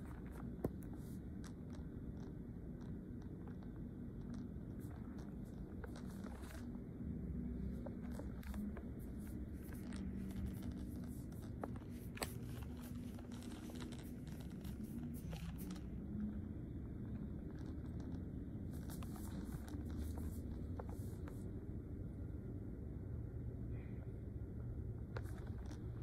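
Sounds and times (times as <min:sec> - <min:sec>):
faint clicks and ticks: 0:00.0 - 0:21.6, 0:24.0 - 0:26.0
indoor hum and rumble: 0:00.0 - 0:26.0.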